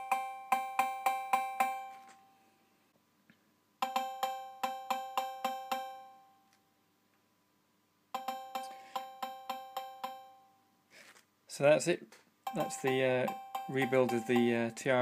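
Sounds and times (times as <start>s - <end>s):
metallic two-tone cowbell hits: 0.0s - 2.0s, 12.5s - 15.0s.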